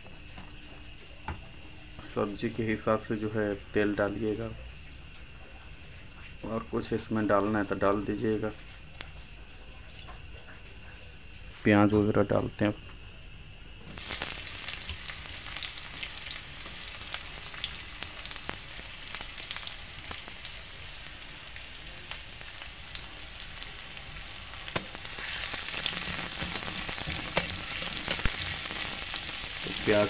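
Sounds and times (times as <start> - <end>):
onions sizzling in hot oil: 13.8 - 30.0.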